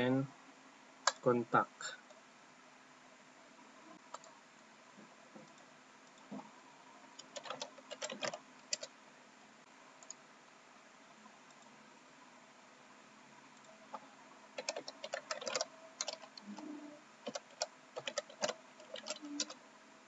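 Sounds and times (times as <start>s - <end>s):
computer keyboard typing: 7.2s - 8.9s, 14.6s - 16.4s, 17.2s - 19.6s.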